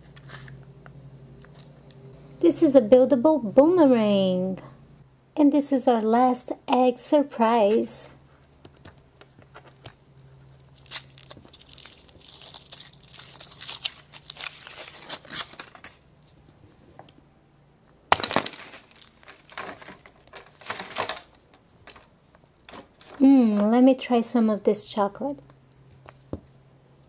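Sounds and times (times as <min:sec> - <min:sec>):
wrapper crinkling and tearing: 0:09.8 - 0:16.4, 0:18.1 - 0:23.7.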